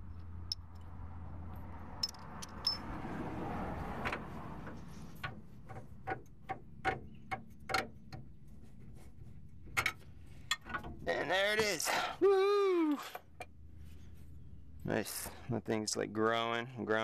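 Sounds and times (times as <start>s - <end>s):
handling and rubbing noise: 4.2s - 6.7s, 7.4s - 12.0s.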